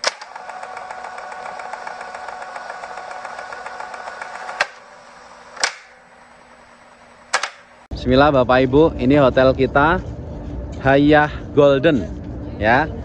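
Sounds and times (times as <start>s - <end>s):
fine ticking whir: 0.0s - 7.9s.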